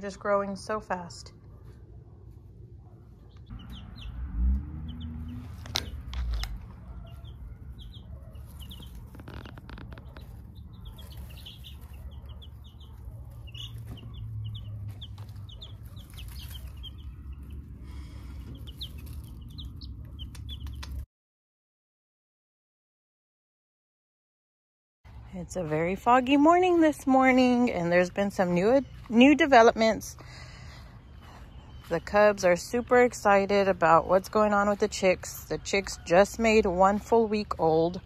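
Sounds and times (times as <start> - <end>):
chicks peeping: 2.4 - 21.0, 25.8 - 38.0.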